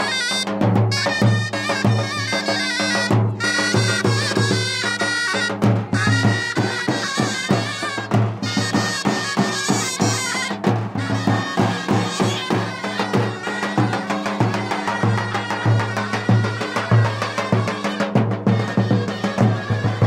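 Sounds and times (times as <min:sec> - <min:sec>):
reedy wind melody: 0:00.0 - 0:20.0
steady drum beat: 0:00.0 - 0:20.0.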